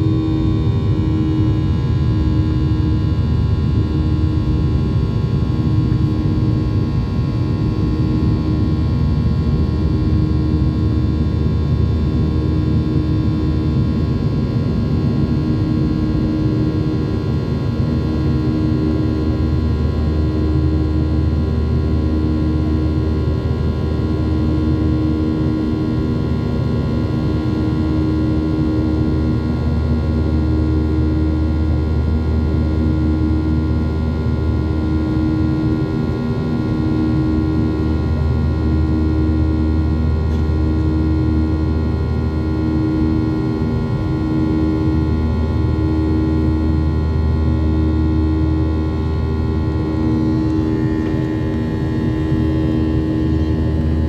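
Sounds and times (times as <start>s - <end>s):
high engine whine: 0.0s - 54.0s
throbbing drone: 36.4s - 54.0s
jet engines rumbling: 48.9s - 54.0s.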